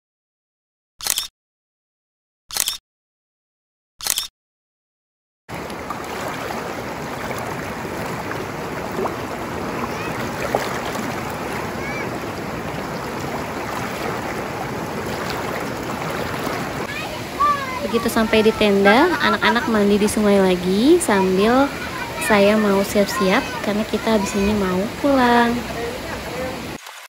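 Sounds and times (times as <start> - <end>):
river water rushing: 5.5 - 27.0.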